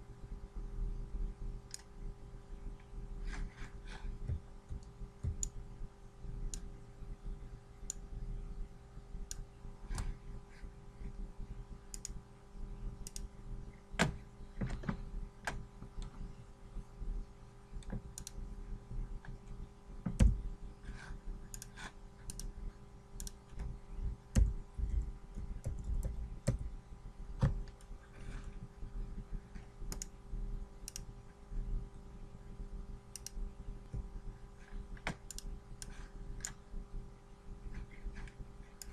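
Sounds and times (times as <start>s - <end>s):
faint steady hum: 0.0s - 38.9s
computer mouse clicks: 1.7s - 1.9s, 4.2s - 5.6s, 11.9s - 12.2s, 13.0s - 13.3s, 17.8s - 18.4s, 21.5s - 22.5s, 23.2s - 26.7s, 29.9s - 30.2s, 30.8s - 31.1s, 33.1s - 34.1s, 35.0s - 36.6s, 37.9s - 38.9s.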